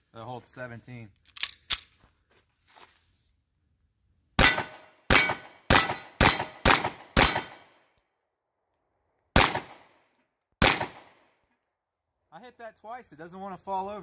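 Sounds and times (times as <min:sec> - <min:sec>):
pistol shots: 0:04.4 - 0:07.7, 0:09.4 - 0:10.0, 0:10.6 - 0:11.3.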